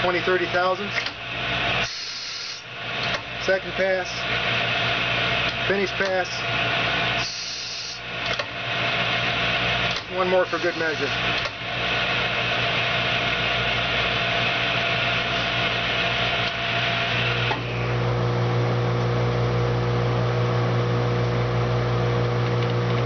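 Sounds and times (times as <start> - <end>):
lathe spindle whirring: 0.0 - 18.4
low electric hum: 0.0 - 23.0.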